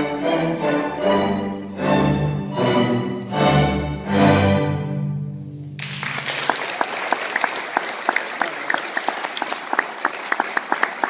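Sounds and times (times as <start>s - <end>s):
string orchestra chord: 0.0s - 5.6s
audience applause: 5.8s - 11.0s.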